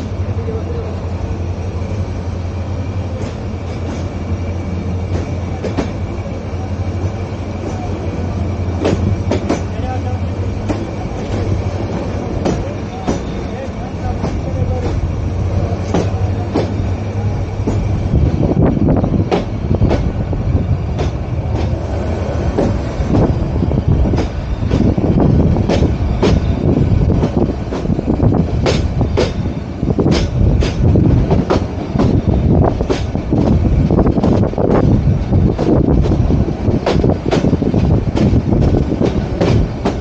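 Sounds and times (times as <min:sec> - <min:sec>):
train coaches rumbling: 0:00.0 - 0:40.0.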